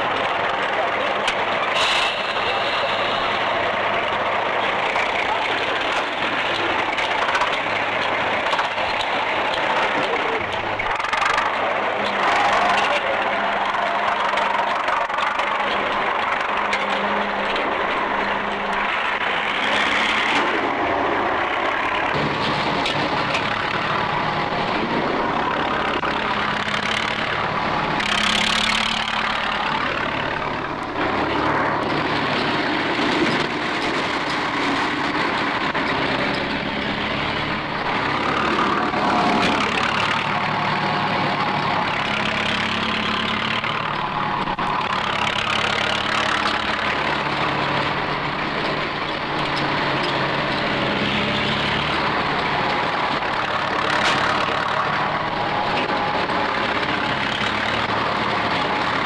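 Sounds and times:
heavy machinery engines: 0:00.0 - 0:59.0.

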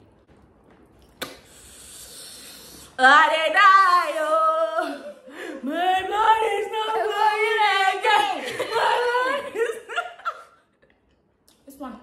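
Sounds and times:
women singing: 0:03.0 - 0:10.0.

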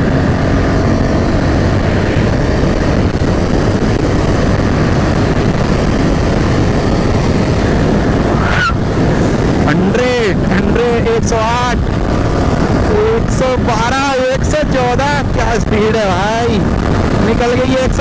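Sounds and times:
motorcycle engine drone: 0:00.0 - 0:18.0
wind rushing over microphone: 0:00.0 - 0:18.0
brief rising tone: 0:08.2 - 0:08.8.

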